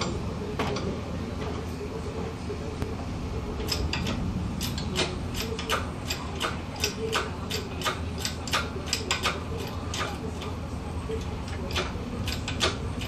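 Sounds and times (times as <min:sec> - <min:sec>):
steady low hum: 0:00.0 - 0:13.0
chain hoist ratchet clicks: 0:03.6 - 0:10.2, 0:11.5 - 0:13.0.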